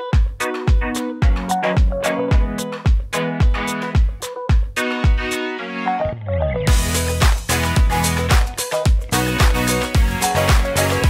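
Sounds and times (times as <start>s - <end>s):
kick drum beat: 0.0s - 5.3s, 6.7s - 10.8s.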